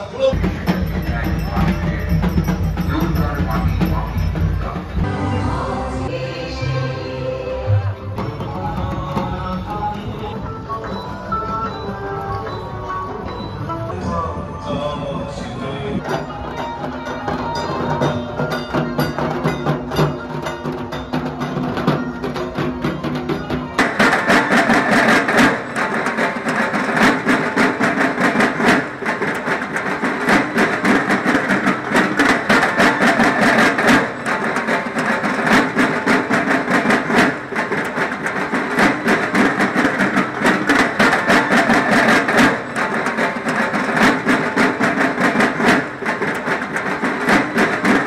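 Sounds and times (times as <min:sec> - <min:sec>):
fast dense drum beat: 0:00.3 - 0:05.1.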